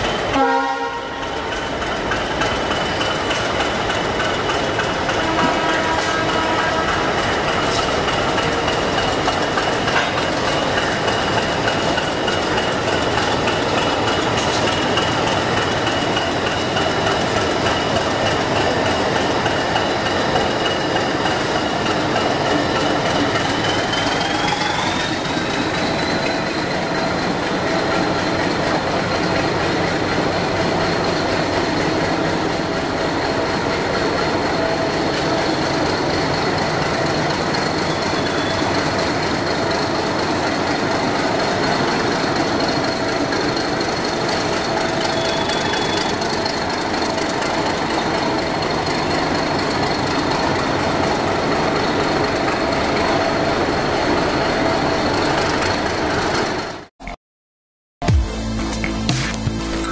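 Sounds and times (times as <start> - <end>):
diesel locomotive engine running: 0.0 - 56.9.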